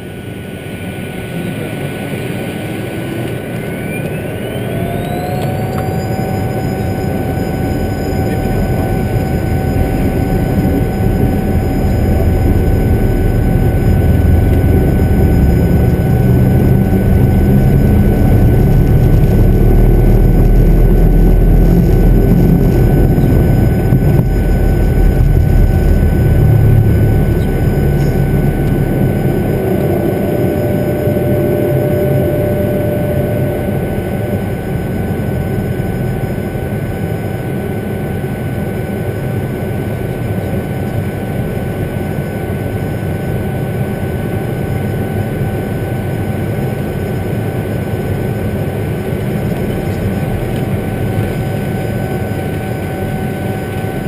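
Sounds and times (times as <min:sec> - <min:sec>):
jet engine whine: 0:00.0 - 0:54.0
wheels rumbling on runway: 0:01.4 - 0:36.2
airflow noise: 0:04.6 - 0:35.5.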